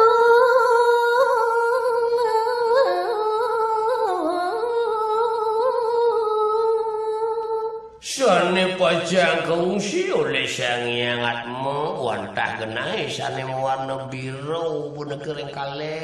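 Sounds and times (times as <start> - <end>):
woman singing unaccompanied: 0.0 - 7.9.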